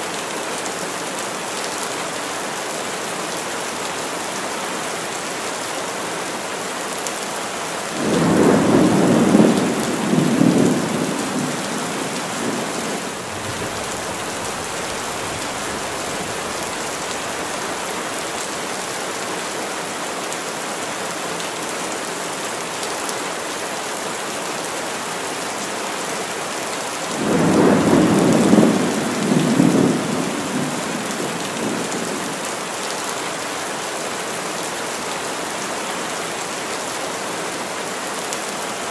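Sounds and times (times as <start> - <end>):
heavy rain falling: 0.0 - 38.9
thunder rumbling: 8.0 - 17.0, 27.2 - 32.4.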